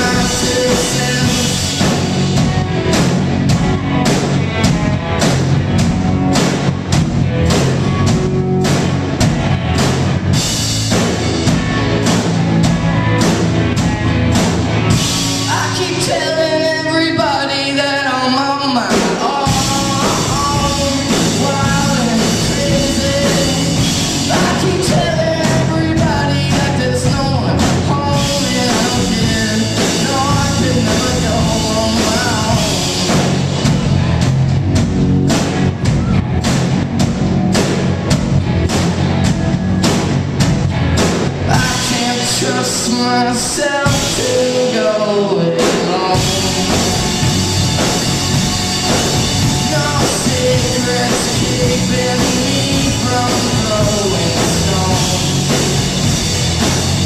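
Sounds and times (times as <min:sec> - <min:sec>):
person singing lead vocal: 0:00.0 - 0:02.4, 0:14.9 - 0:33.8, 0:41.4 - 0:56.7
drum kit: 0:00.0 - 0:57.0
electric guitars: 0:00.0 - 0:57.0.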